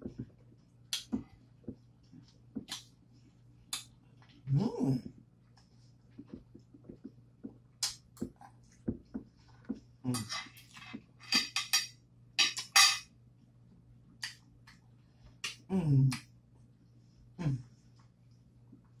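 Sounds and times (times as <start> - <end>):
utensil clinking against dish: 11.2 - 13.1.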